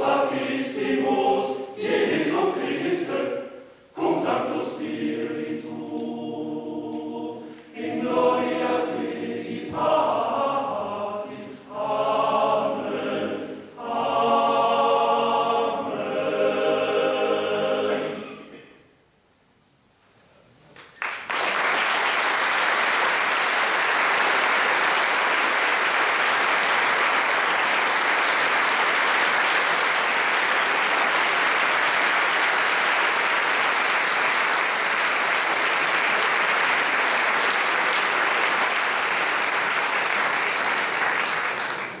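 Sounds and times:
audience applauding: 0:20.8 - 0:42.0.

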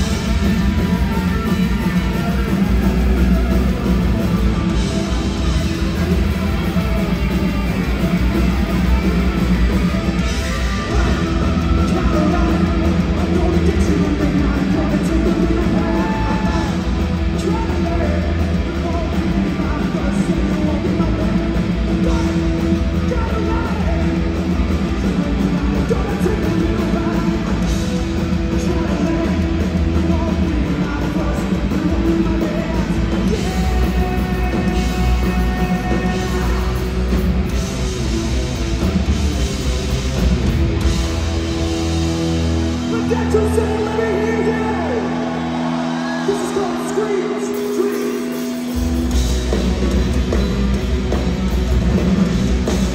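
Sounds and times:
distorted electric guitar: 0:00.0 - 0:52.9
punk rock band playing: 0:00.0 - 0:52.9
person singing: 0:10.4 - 0:24.2, 0:28.5 - 0:36.9.

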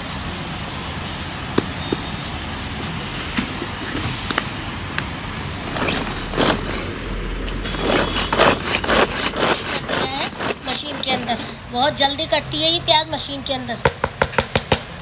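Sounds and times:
food chopper blades whirring: 0:05.6 - 0:11.5.

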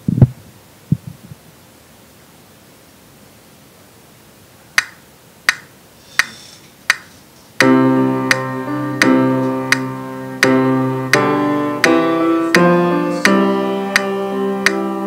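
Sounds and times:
metronome clicks: 0:04.8 - 0:14.9
keyboard held chords: 0:07.6 - 0:15.0.

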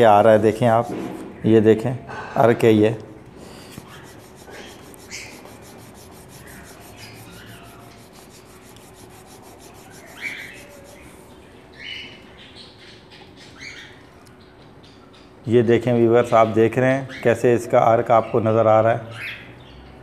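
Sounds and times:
garlic scraping on sharpening stone: 0:03.6 - 0:11.2.

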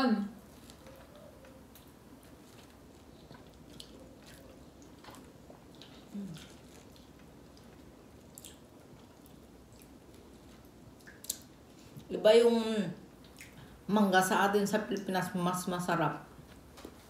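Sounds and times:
mouth chewing and squishing: 0:00.6 - 0:12.1
person humming low: 0:06.1 - 0:06.5.

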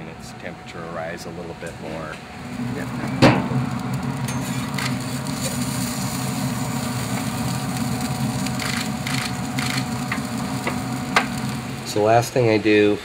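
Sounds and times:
low mechanical hum: 0:00.0 - 0:13.0
tongs scraping on grill grate: 0:02.4 - 0:11.7.

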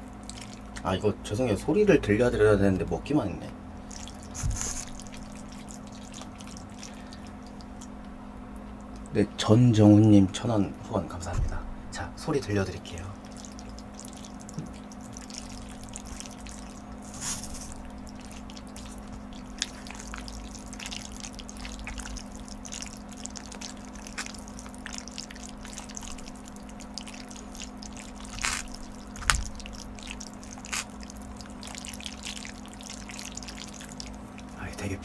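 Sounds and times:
noodles slurped and chewed: 0:00.1 - 0:00.8, 0:03.9 - 0:08.0, 0:13.2 - 0:34.6.

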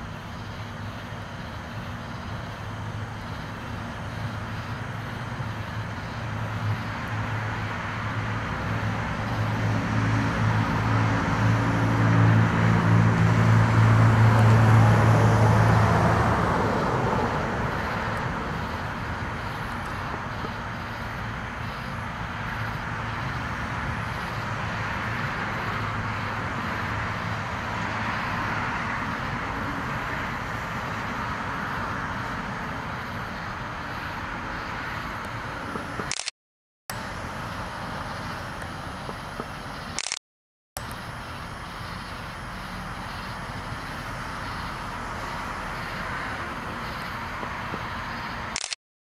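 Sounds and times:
steady hiss and hum: 0:00.0 - 0:09.9, 0:16.7 - 0:36.1.

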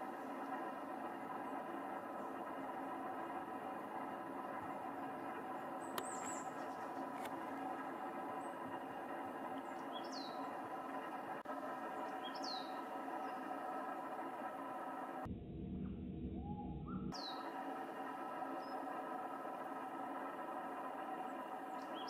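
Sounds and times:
background hum: 0:00.0 - 0:22.0
high bird calls: 0:05.2 - 0:07.2, 0:09.6 - 0:10.8, 0:11.8 - 0:13.6, 0:16.4 - 0:17.5, 0:21.3 - 0:22.0.

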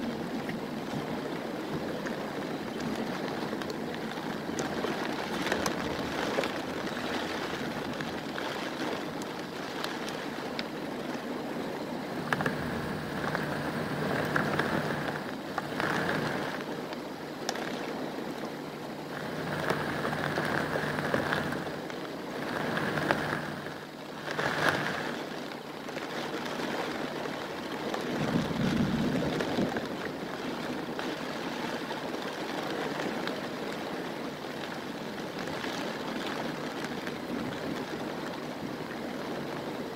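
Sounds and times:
heavy rain on foliage: 0:00.0 - 0:39.9
low rumble: 0:28.1 - 0:30.1.

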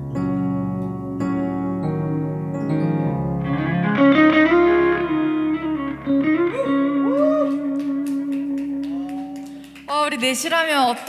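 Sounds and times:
instrumental accompaniment: 0:00.0 - 0:10.4
hand claps: 0:07.0 - 0:11.0.

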